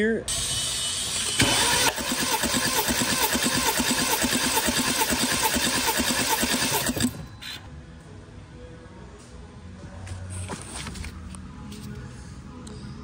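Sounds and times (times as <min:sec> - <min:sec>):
engine cranked by starter: 0:01.1 - 0:07.2.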